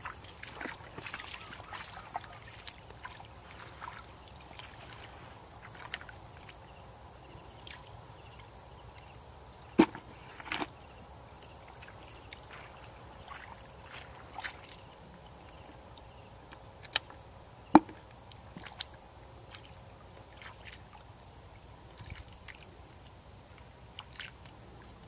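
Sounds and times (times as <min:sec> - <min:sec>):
hands splashing in muddy puddle: 0:00.0 - 0:06.6
sharp knocks in plastic bucket: 0:09.8 - 0:10.7, 0:17.7 - 0:18.0.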